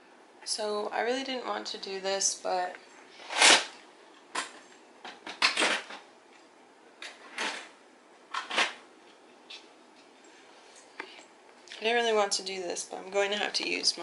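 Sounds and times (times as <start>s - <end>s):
objects knocking and clunking: 4.2s - 6.1s.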